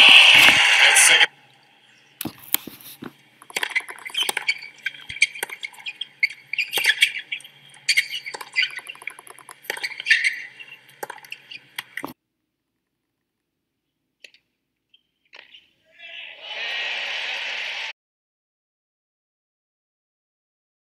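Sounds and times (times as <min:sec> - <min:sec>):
tennis ball off racquet: 0:02.2 - 0:07.2
sneakers squeaking: 0:02.2 - 0:12.2, 0:14.2 - 0:15.8.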